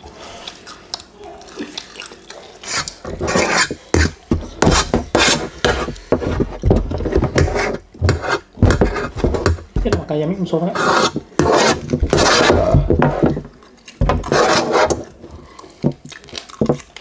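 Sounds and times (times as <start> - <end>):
fork scraping metal tray: 2.6 - 9.9, 10.7 - 13.4, 14.1 - 15.1
fried chicken crunching: 15.4 - 17.0.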